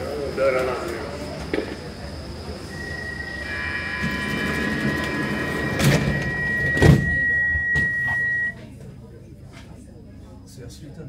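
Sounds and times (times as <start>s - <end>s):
steady high warning tone: 0.0s - 8.6s
train low rumble: 0.0s - 10.2s
sliding doors thumping shut: 4.0s - 8.0s.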